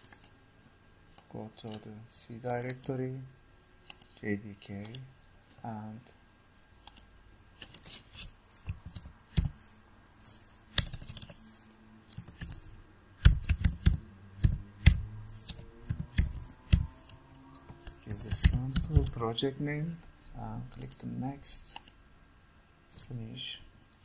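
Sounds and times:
keyboard typing: 0:00.0 - 0:00.3, 0:02.5 - 0:02.9, 0:03.8 - 0:04.1, 0:06.8 - 0:19.2, 0:20.7 - 0:21.0, 0:21.7 - 0:22.0
mouse clicks: 0:06.8 - 0:07.8.

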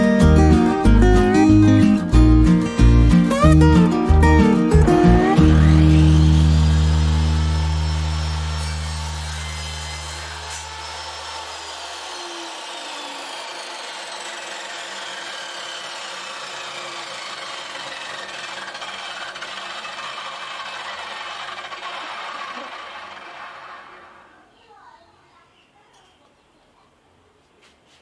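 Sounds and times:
saw motor hum: 0:00.0 - 0:24.4
saw blade whine spinning down: 0:03.3 - 0:24.5.

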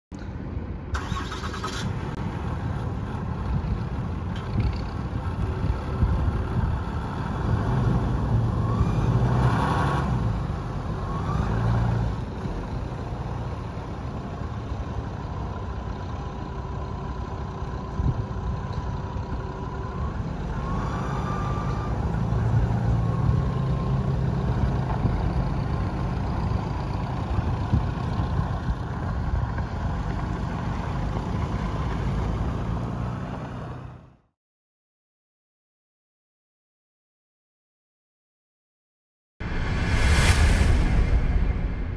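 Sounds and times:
truck engine rumbling: 0:00.2 - 0:32.9.

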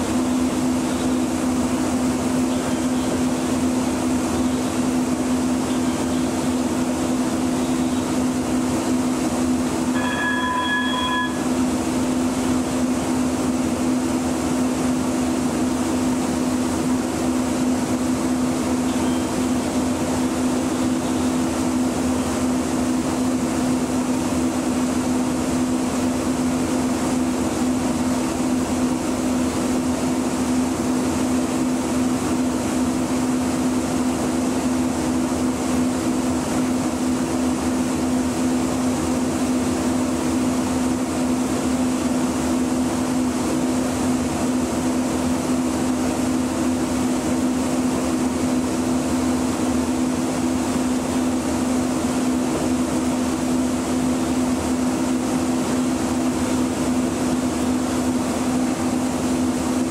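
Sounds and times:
low drone inside rail car: 0:00.0 - 0:13.4, 0:18.5 - 0:24.3.

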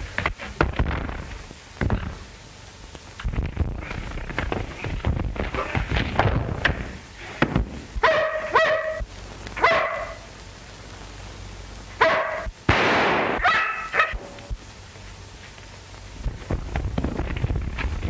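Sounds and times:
dog barking: 0:08.0 - 0:10.3, 0:12.0 - 0:12.5, 0:13.4 - 0:14.3.

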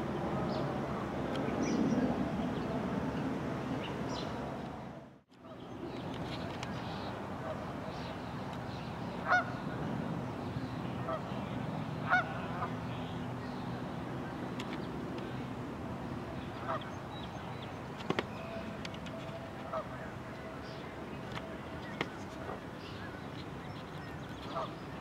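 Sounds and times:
geese honking: 0:09.2 - 0:09.6, 0:12.0 - 0:12.7.

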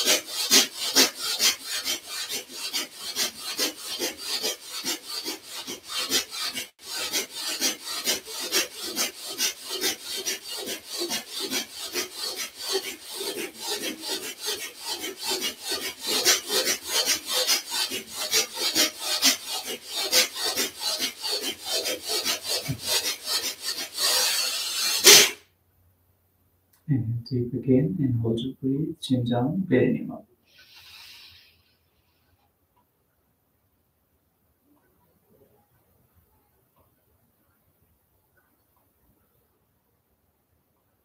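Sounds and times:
rapid forceful nose breathing: 0:00.0 - 0:25.4, 0:30.5 - 0:31.6
long deep inhalation: 0:30.4 - 0:31.8.

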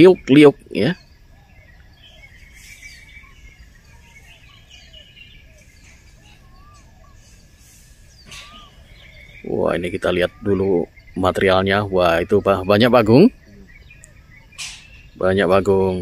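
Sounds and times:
bird chirps and whistles: 0:00.0 - 0:11.2
distant low rumble: 0:00.0 - 0:16.0.

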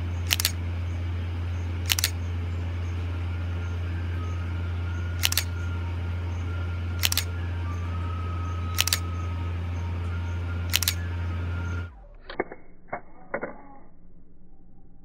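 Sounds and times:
steady low hum: 0:00.0 - 0:15.0
camera shutter clicks: 0:00.3 - 0:00.6, 0:01.9 - 0:02.2, 0:05.2 - 0:05.6, 0:07.0 - 0:07.4, 0:08.7 - 0:09.2, 0:10.7 - 0:11.0.

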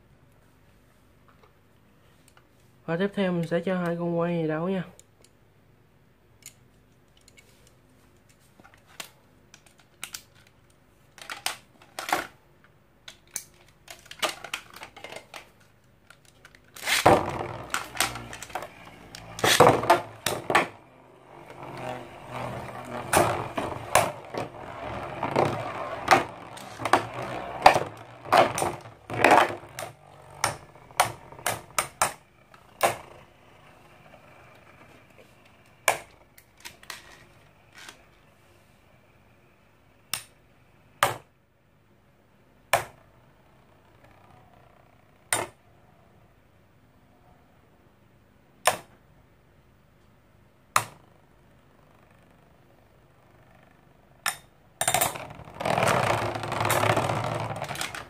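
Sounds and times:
spinning tops whirring: 0:16.7 - 0:38.2, 0:55.0 - 0:58.0.

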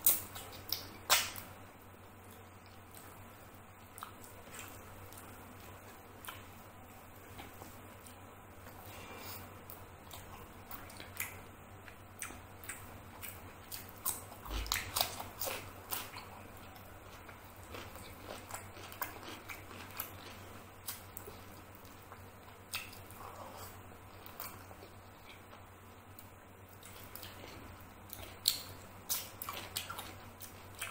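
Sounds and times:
wet chewing: 0:07.3 - 0:30.9.

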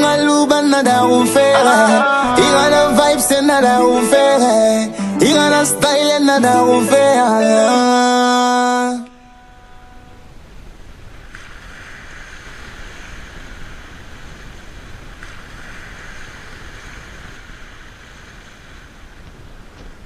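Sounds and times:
wind: 0:08.7 - 0:20.0.

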